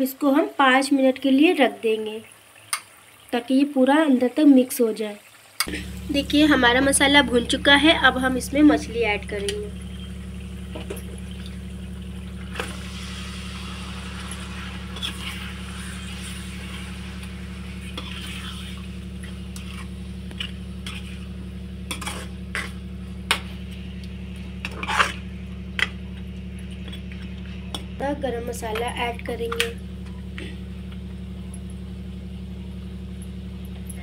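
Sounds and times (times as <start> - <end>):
light sizzle: 0.0 - 34.0
steady low hum: 5.6 - 34.0
metal spoon scraping steel pan: 14.2 - 16.5, 17.8 - 18.9, 19.6 - 21.3, 21.9 - 23.4, 24.6 - 25.9.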